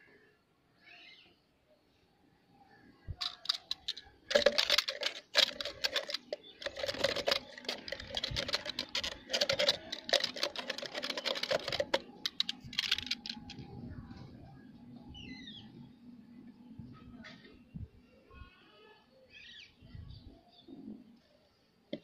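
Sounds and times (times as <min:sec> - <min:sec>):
tomato rattling in plastic jar: 0:03.2 - 0:13.6.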